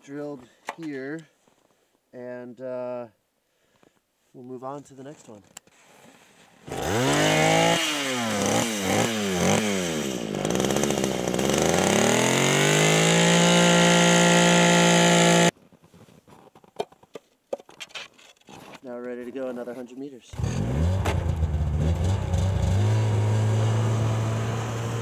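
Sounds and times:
ice auger engine revving: 6.7 - 15.5, 20.3 - 25.0.

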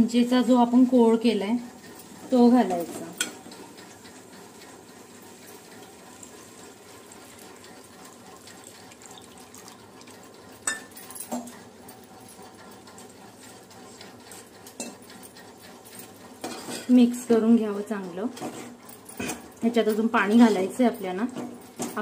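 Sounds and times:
curry hissing in a pot: 5.0 - 10.5
steel spoon clinking on pot: 10.6 - 11.4.

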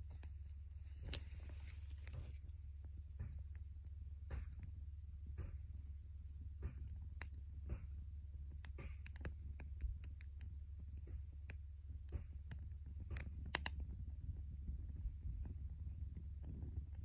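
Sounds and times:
wood fire crackling: 0.0 - 6.0, 6.6 - 14.9.

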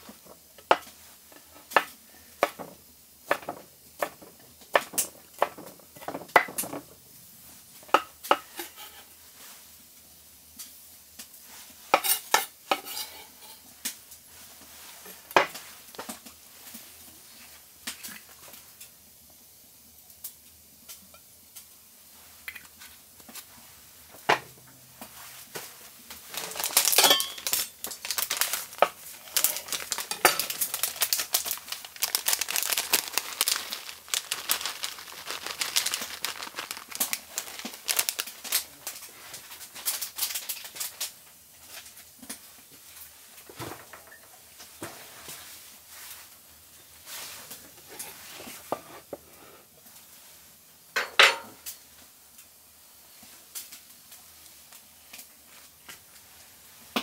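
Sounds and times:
crackling and clicking: 26.1 - 41.2
utensils clinking on dishes: 26.4 - 27.8.

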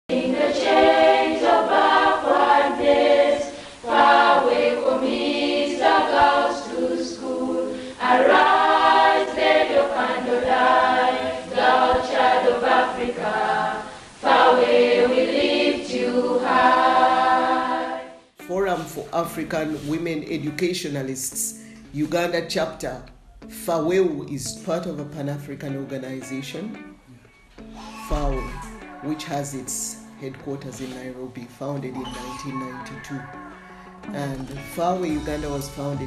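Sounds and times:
choir singing a cappella: 0.1 - 18.4, 27.7 - 31.1, 31.9 - 34.4.

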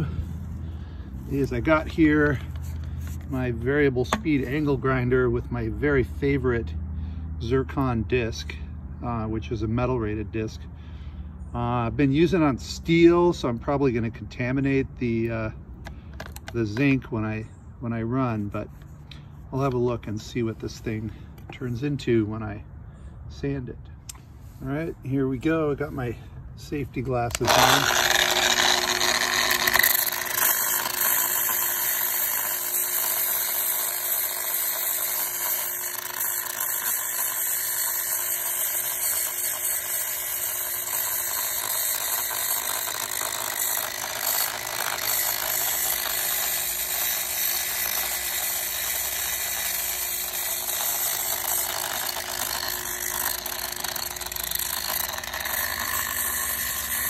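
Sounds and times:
angle grinder grinding metal: 0.0 - 6.4, 26.7 - 57.0.

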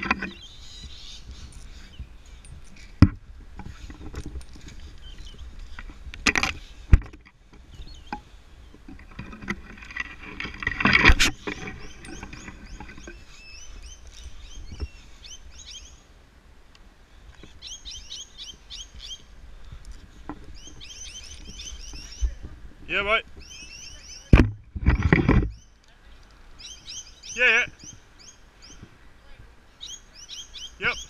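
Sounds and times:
metal hardware clattering on rope: 0.0 - 0.4, 1.4 - 7.3, 8.8 - 13.3
birds chirping: 0.0 - 16.2, 17.1 - 31.0.

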